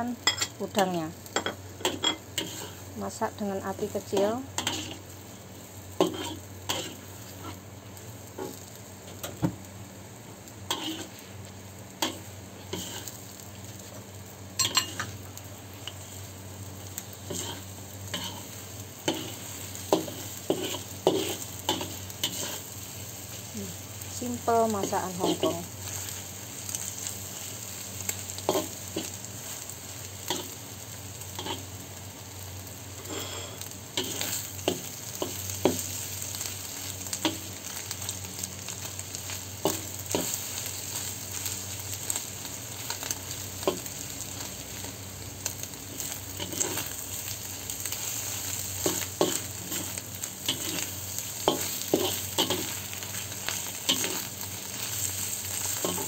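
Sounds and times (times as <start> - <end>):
food sizzling in oil: 0.0 - 56.0
metal spatula scraping a wok: 10.7 - 11.2.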